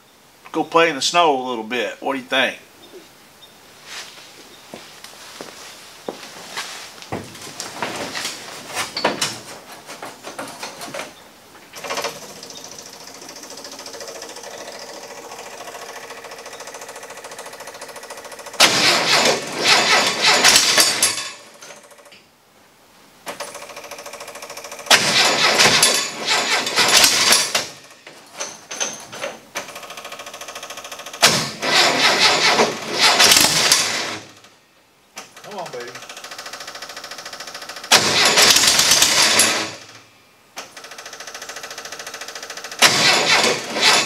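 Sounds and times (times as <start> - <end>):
steady hum: 0.0 - 19.6
engine cranking: 11.8 - 22.1, 23.4 - 29.0, 29.6 - 34.5, 35.2 - 40.0, 40.6 - 44.0.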